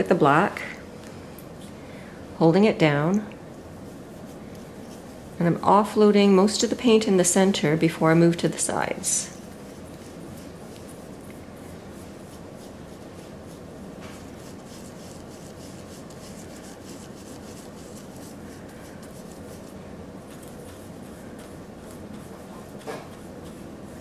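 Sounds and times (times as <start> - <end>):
steady low hum: 0.0 - 24.0
stencil brush scratching: 9.4 - 24.0.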